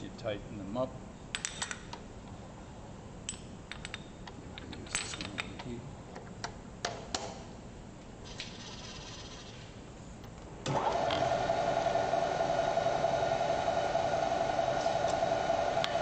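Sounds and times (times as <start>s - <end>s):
metal parts clicking and clinking: 1.3s - 1.9s, 3.3s - 6.3s.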